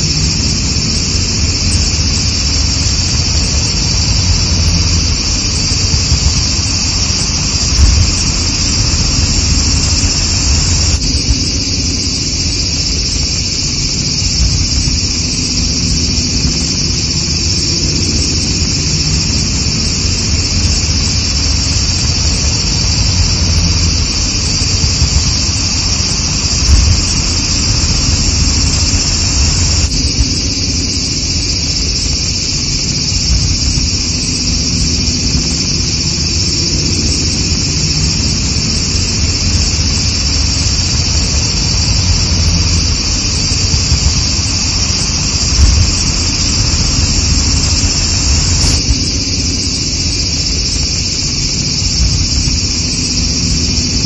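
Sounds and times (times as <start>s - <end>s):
low rumble: 0.0s - 49.8s
cicadas buzzing: 0.0s - 54.0s
low thumps: 0.6s - 12.0s, 17.5s - 30.8s, 38.1s - 49.5s.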